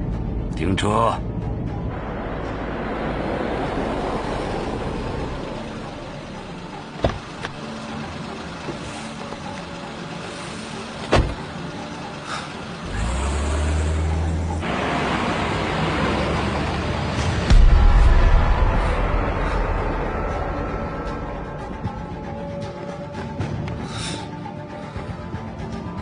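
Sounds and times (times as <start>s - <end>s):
car engine running: 1.4s - 26.0s
car door shutting: 7.0s - 7.6s, 11.0s - 11.4s
car door clicking open: 11.0s - 11.4s.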